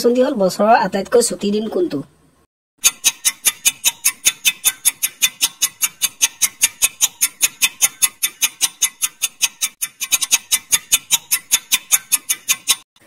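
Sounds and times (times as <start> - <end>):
timer ticking: 2.8 - 12.9.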